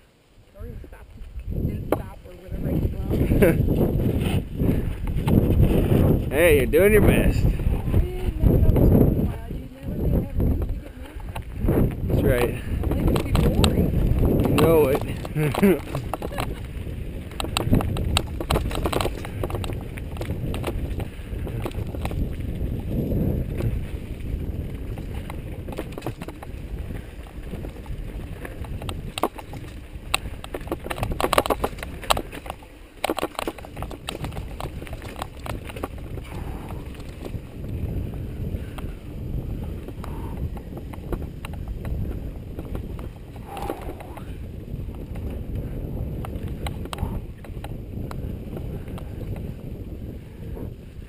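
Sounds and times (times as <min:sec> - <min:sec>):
wind buffeting and trail noise: 0:00.0 - 0:51.0
bike rattling knocks: 0:12.6 - 0:37.7.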